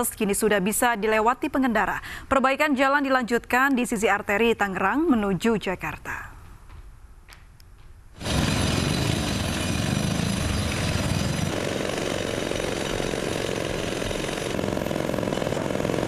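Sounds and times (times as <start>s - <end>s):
road-repair machinery running: 8.2s - 16.0s.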